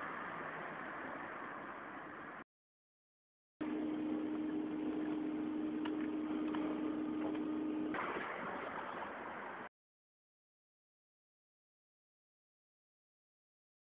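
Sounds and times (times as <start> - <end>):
steady mechanical hum: 3.6 - 9.7.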